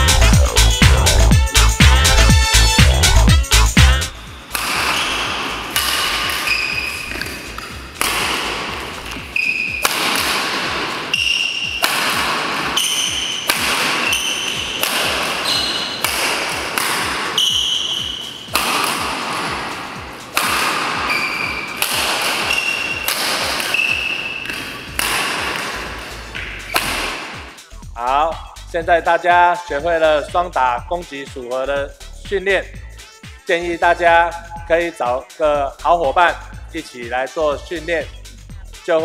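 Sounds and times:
short high squeaks: 0:04.2 - 0:07.7, 0:09.3 - 0:10.0, 0:11.1 - 0:11.9, 0:12.8 - 0:16.2, 0:17.4 - 0:18.4, 0:21.1 - 0:24.5
rackets hitting shuttlecocks: 0:04.2 - 0:27.7.

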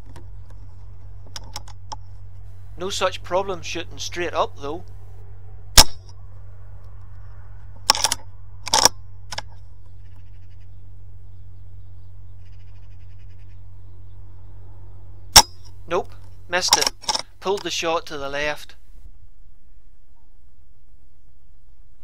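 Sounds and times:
steady low hum: 0:00.0 - 0:22.0
air rifle mechanical clacks: 0:15.4 - 0:17.7.

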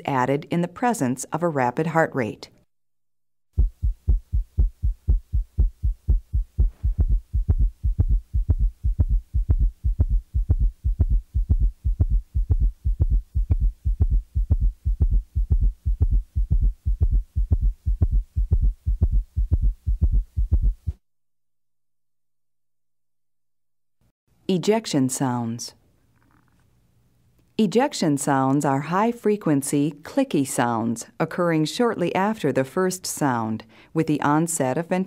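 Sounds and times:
galloping heartbeat through stethoscope: 0:03.5 - 0:21.0.

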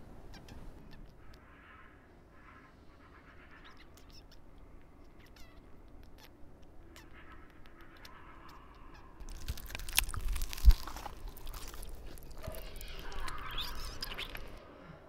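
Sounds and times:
squeaky cartoon hamster chatter: 0:00.3 - 0:01.4, 0:03.4 - 0:04.4, 0:05.0 - 0:14.6.

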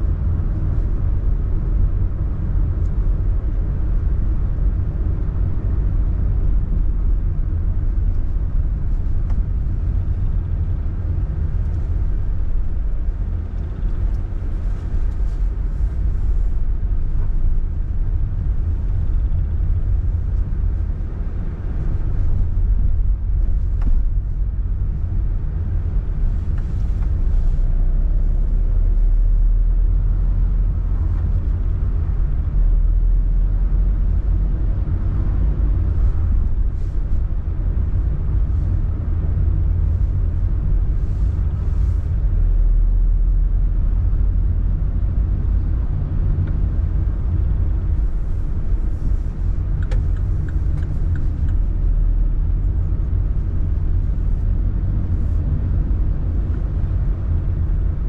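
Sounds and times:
car engine rumble: 0:00.0 - 0:58.0
road noise: 0:00.0 - 0:58.0.

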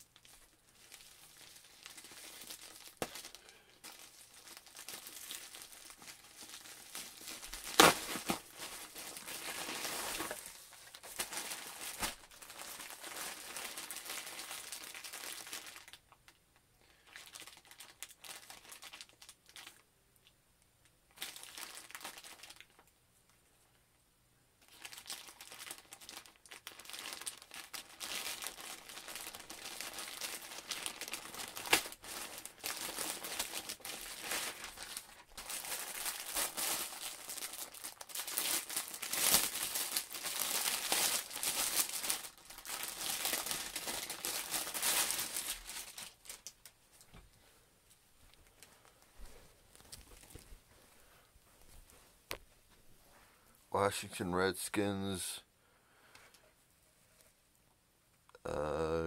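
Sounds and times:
plastic mailer bag crinkling: 0:00.0 - 0:19.8, 0:21.1 - 0:22.9, 0:24.6 - 0:46.8, 0:49.7 - 0:50.6.

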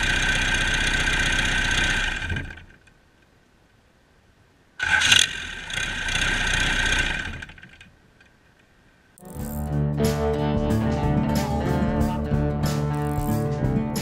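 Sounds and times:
diesel engine running: 0:00.0 - 0:02.6
guitar music: 0:09.2 - 0:14.0.

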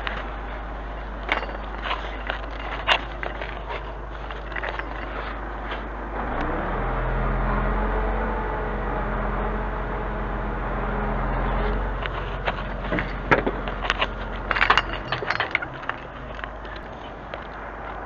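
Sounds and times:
truck engine running: 0:00.0 - 0:18.0
crane chain and hook rattling: 0:01.0 - 0:05.8, 0:11.2 - 0:18.0.

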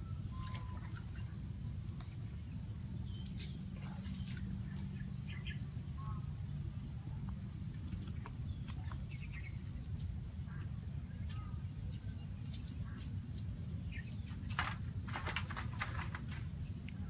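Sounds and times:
faint bird chirps: 0:00.0 - 0:17.0
crackles and scrapes: 0:07.2 - 0:17.0.

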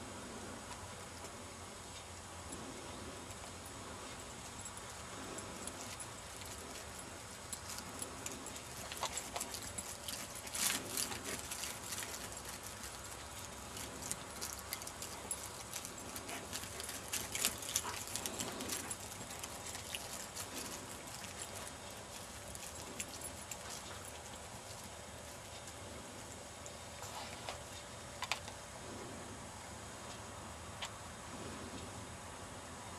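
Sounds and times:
footsteps crunching through stubble: 0:05.6 - 0:27.9.

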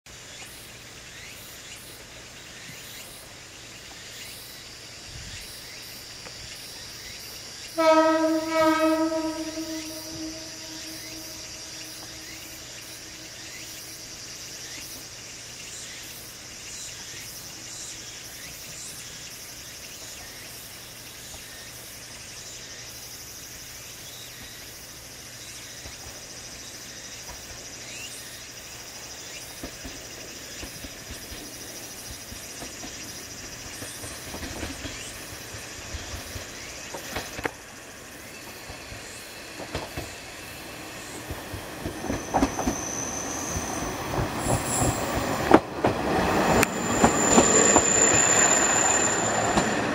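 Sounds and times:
diesel railcar engine hum: 0:00.1 - 0:49.9
distant train horn: 0:07.7 - 0:13.6.

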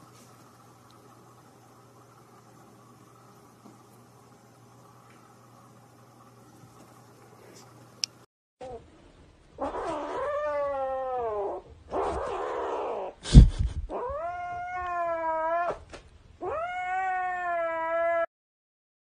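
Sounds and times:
kitten yowling: 0:09.6 - 0:13.2, 0:13.9 - 0:15.8, 0:16.4 - 0:18.3
kitten growling: 0:09.6 - 0:15.8, 0:16.4 - 0:18.3.

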